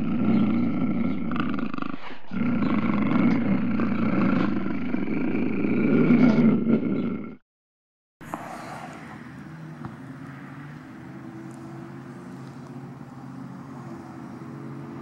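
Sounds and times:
low continuous roar: 0:00.0 - 0:07.3.

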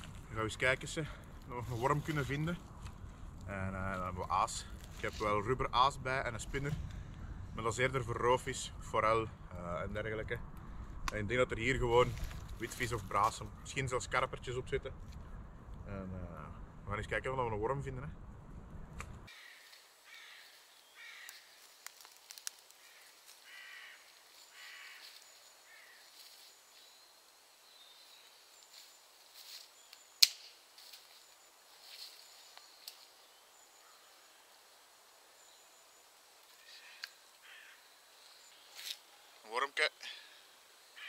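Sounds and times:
crows cawing: 0:19.3 - 0:21.7, 0:22.7 - 0:26.4, 0:36.5 - 0:38.0, 0:40.0 - 0:41.0.

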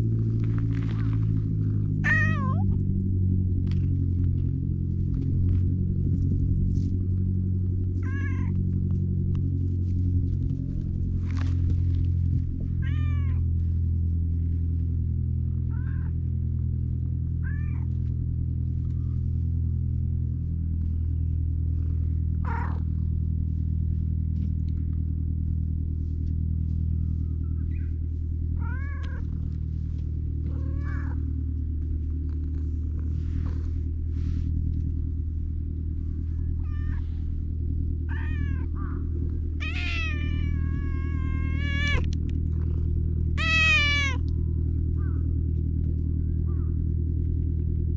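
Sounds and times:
cat meowing: 0:02.0 - 0:02.7, 0:08.0 - 0:08.6, 0:12.8 - 0:13.4, 0:22.4 - 0:22.8, 0:28.6 - 0:29.2, 0:30.5 - 0:31.2, 0:36.6 - 0:37.0, 0:38.1 - 0:39.0, 0:39.6 - 0:42.1, 0:43.4 - 0:44.3.

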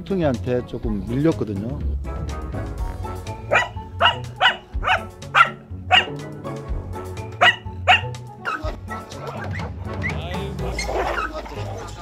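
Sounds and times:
background music: 0:00.0 - 0:12.0
dog barking: 0:03.4 - 0:06.3, 0:07.4 - 0:11.6.

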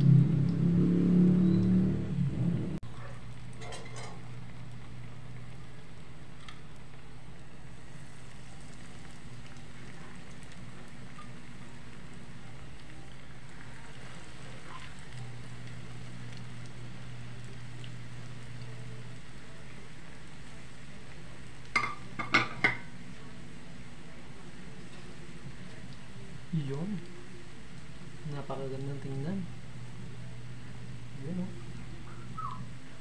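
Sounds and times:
low hum: 0:00.0 - 0:21.7
deep-frying sizzle in oil: 0:00.0 - 0:33.0.

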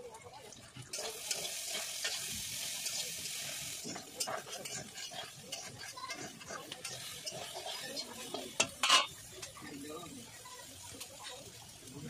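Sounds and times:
hot oil sizzling: 0:00.0 - 0:12.0
metal spoon scraping a pan: 0:00.9 - 0:09.8.

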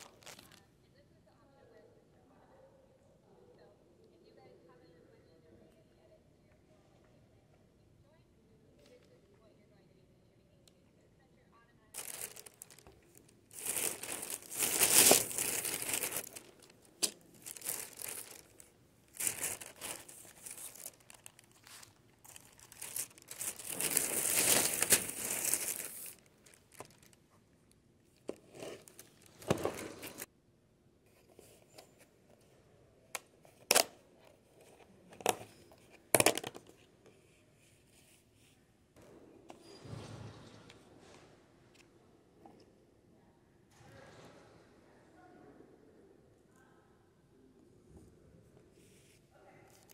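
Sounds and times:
shopping bags rustling: 0:00.0 - 0:00.6, 0:12.0 - 0:27.3, 0:28.3 - 0:30.3.

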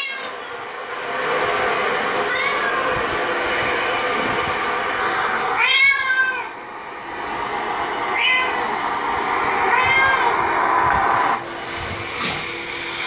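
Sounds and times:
cat meowing: 0:00.0 - 0:00.4, 0:02.3 - 0:02.9, 0:05.5 - 0:06.6, 0:08.1 - 0:08.7, 0:09.7 - 0:10.4.

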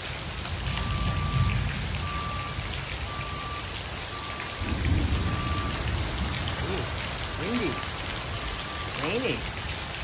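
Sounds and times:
heavy rain pouring: 0:00.0 - 0:10.0
faint beep: 0:00.8 - 0:04.4, 0:05.3 - 0:05.8.

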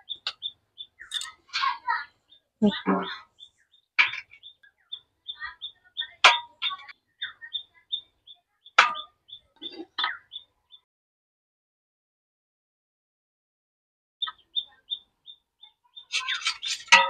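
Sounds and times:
small bird chirping: 0:00.0 - 0:10.8, 0:14.2 - 0:17.0.

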